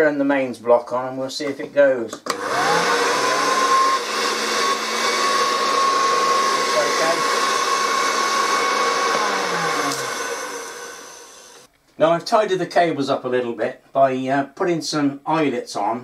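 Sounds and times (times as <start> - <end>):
hand vacuum motor whining: 2.3 - 11.7.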